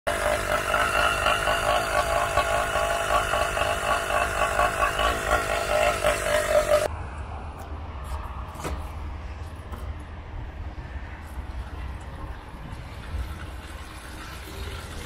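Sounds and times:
two-stroke engine idling: 0.1s - 6.9s.

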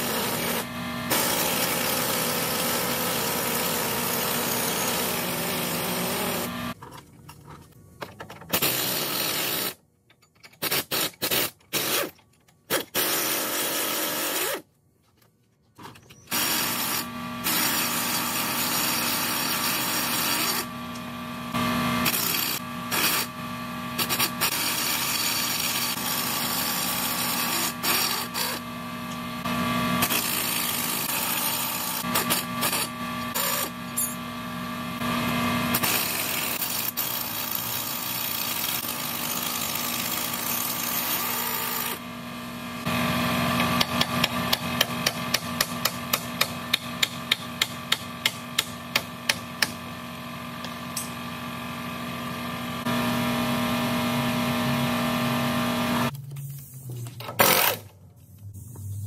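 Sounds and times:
power tool running: 0.0s - 6.8s, 16.3s - 56.1s.

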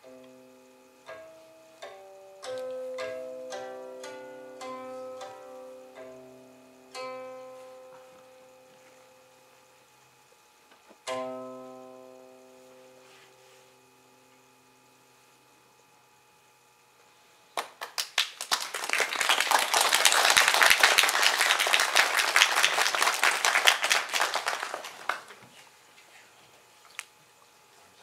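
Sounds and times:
audience applauding: 17.6s - 25.4s.

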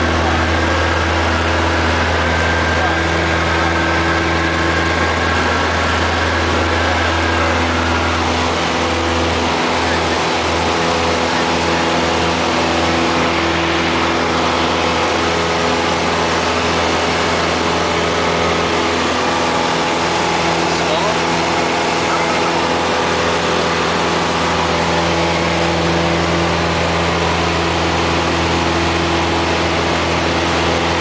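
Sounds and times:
propeller plane engine drone: 0.0s - 31.0s.

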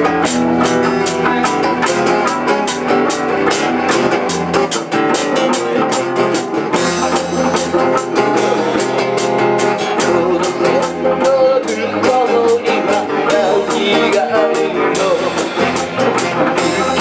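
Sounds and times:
acoustic guitar: 0.0s - 17.0s
electric bass: 0.0s - 17.0s
electric guitar: 0.0s - 17.0s
steady drum beat: 0.0s - 17.0s
man singing into microphone: 9.9s - 15.8s, 16.4s - 17.0s.

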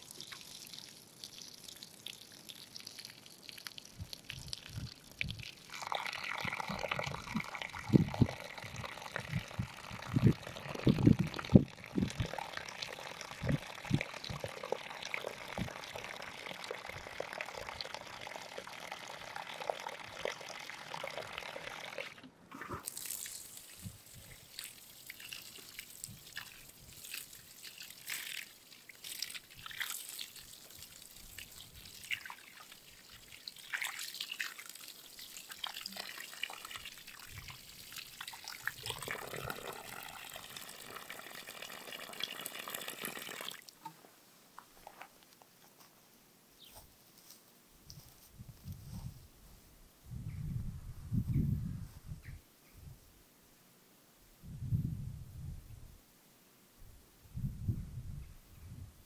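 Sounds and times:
water pouring onto soil: 0.0s - 43.8s.

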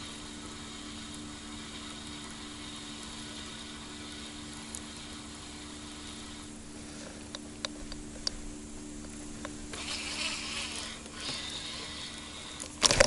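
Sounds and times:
reel cranking whirr: 0.0s - 8.3s, 9.2s - 13.0s
faint steady hum: 0.0s - 13.0s
fishing reel clicks: 9.7s - 13.0s.

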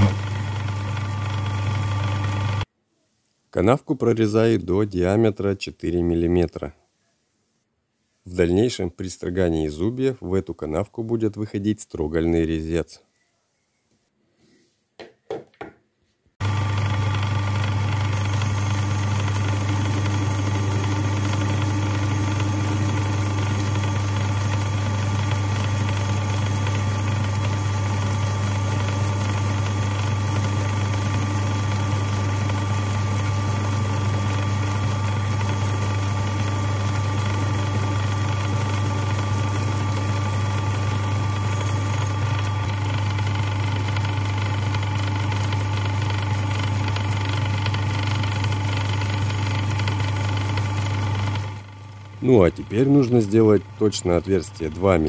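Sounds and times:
metal lathe humming: 0.0s - 2.6s, 16.4s - 55.0s.

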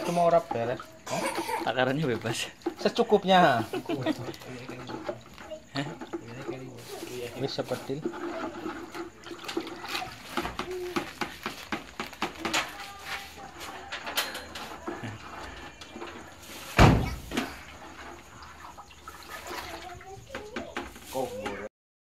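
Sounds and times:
stick stirring water in bucket: 0.0s - 13.9s, 14.6s - 21.7s.

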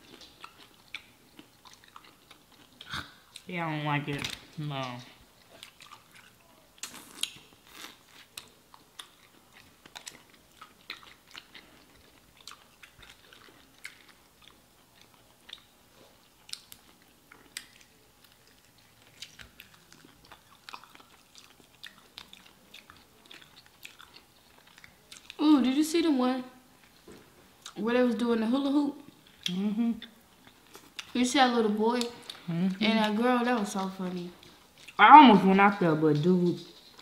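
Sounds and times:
people chewing: 0.0s - 3.5s, 4.3s - 25.6s, 28.6s - 35.4s, 36.1s - 37.0s
crunching fried chicken: 5.6s - 25.4s.

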